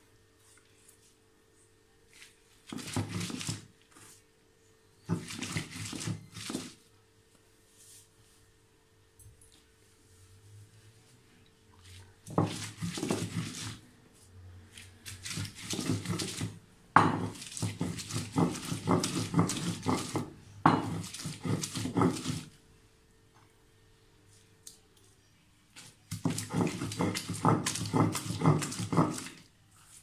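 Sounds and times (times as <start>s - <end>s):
stone roller grinding on stone: 5.1s - 6.7s, 12.3s - 13.8s, 15.1s - 22.5s, 26.1s - 29.4s.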